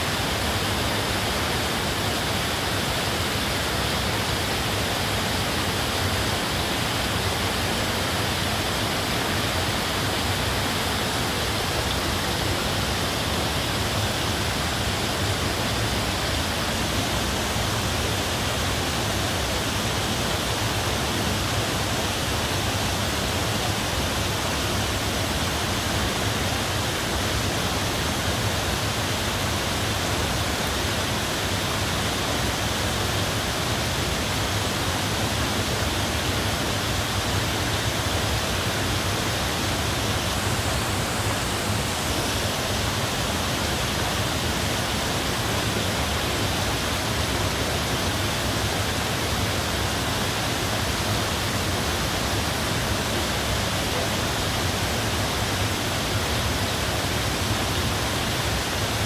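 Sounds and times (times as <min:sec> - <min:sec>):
falling water rushing: 0:00.0 - 0:59.0.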